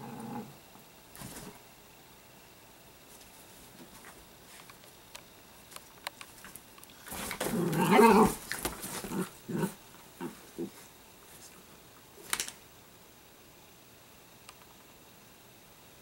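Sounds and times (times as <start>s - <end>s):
dogs play-growling: 0.0s - 0.6s, 7.0s - 10.8s
dog grunts: 7.4s - 10.8s.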